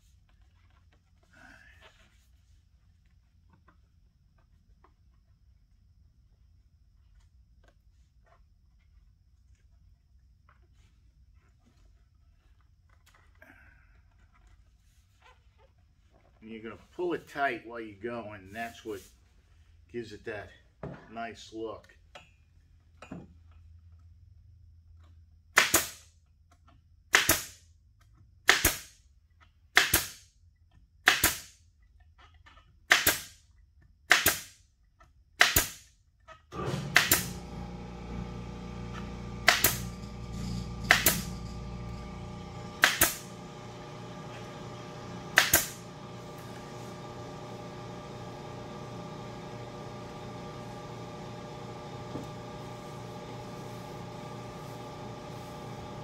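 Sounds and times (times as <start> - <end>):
machine hum with low rumble: 36.5 - 56.0
staple gun firing: 42.8 - 43.2, 45.4 - 45.8.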